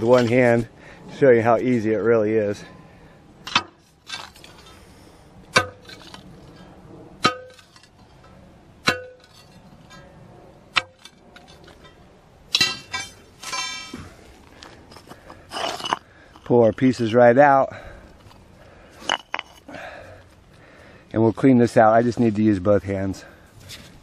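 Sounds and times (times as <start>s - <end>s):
ringing rattling metal scrapes: 5.6s - 10.2s, 10.8s - 14.2s
pry bar clanking on concrete: 12.5s - 14.1s.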